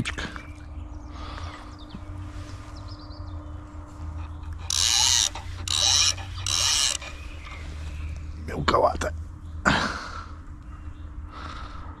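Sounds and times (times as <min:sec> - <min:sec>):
fishing reel whirring: 0:04.5 - 0:07.6.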